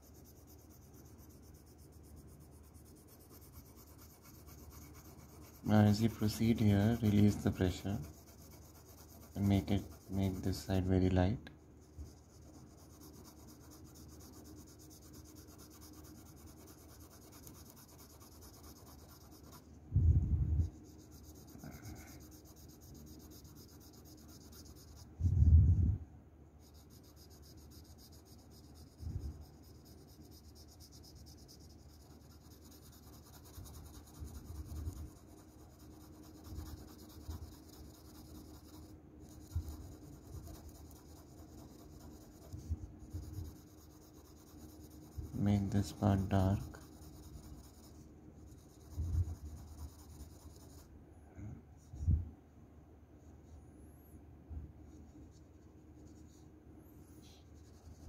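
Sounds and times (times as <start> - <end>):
pencil scratching on paper: 0.0 - 19.7, 20.6 - 25.1, 26.6 - 50.9, 57.3 - 58.0.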